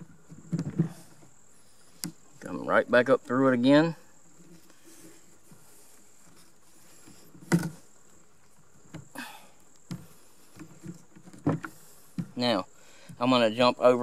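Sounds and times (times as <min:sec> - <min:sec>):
high insect drone: 0:00.0 - 0:14.0
rope scraping on wood: 0:04.3 - 0:09.0.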